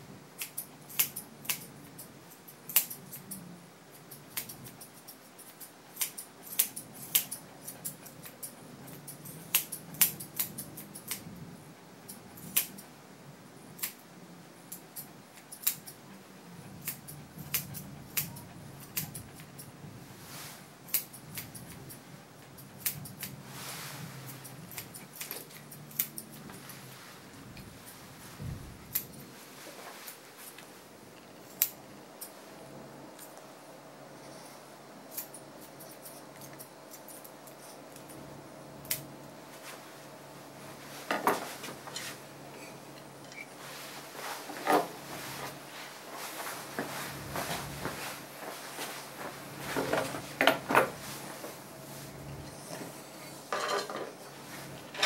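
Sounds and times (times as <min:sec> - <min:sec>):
grooming shears snipping: 0:00.4 - 0:11.3, 0:12.0 - 0:12.9, 0:13.7 - 0:14.0, 0:14.7 - 0:16.0, 0:16.6 - 0:19.8, 0:20.9 - 0:28.0, 0:28.8 - 0:29.4.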